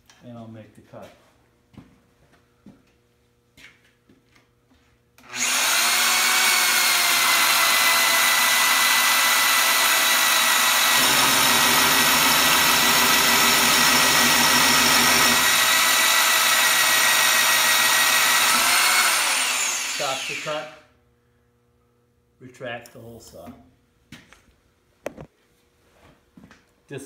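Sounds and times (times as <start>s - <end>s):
motor whining: 5.2s - 20.8s.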